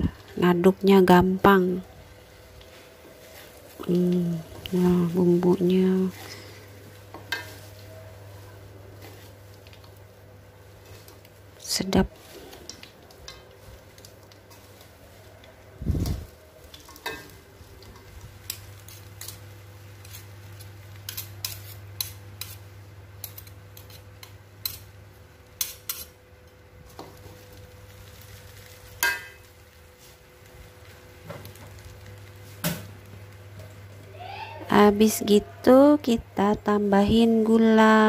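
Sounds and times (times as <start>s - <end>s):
spatula scraping metal wok: 17.9s - 24.9s, 25.6s - 26.2s.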